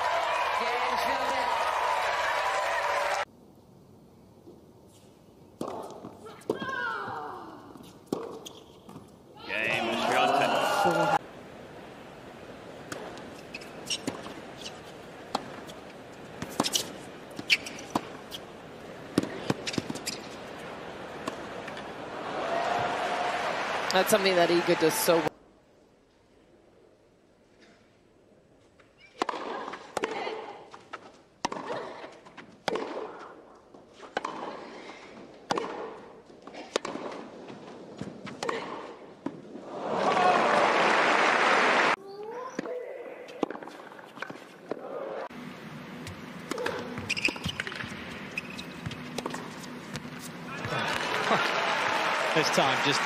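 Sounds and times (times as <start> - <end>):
racket striking tennis ball: 5.6 - 6.7, 8.1 - 9.0, 19.0 - 20.3, 29.2 - 33.3, 34.0 - 34.7, 35.4 - 37.3, 46.0 - 50.8
ball bouncing on court: 19.1 - 20.2, 46.0 - 51.1.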